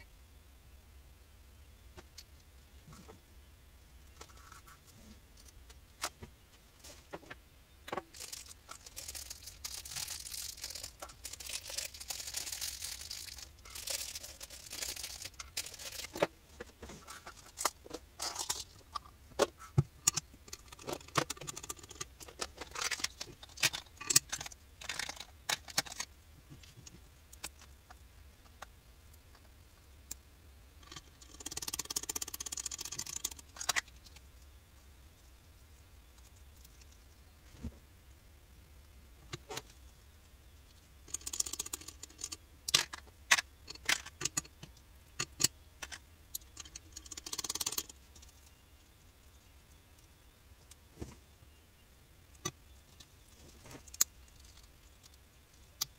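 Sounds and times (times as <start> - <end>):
rustling and rummaging: 4.1 - 27.7, 52.9 - 55.1
small metal parts clicking: 8.1 - 16.2, 20.0 - 26.1, 30.8 - 34.2, 41.0 - 48.5.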